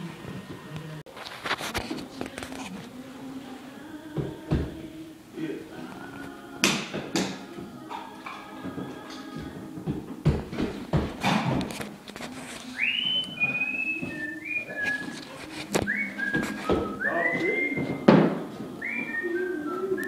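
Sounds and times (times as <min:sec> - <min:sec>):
person whistling a tune: 0:12.7 - 0:18.2, 0:18.8 - 0:20.0.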